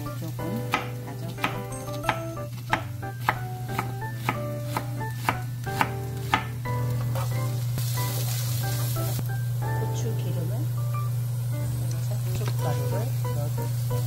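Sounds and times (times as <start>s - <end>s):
onion sizzling in frying pan: 0.0s - 14.0s
knife chopping on wooden board: 0.7s - 6.6s.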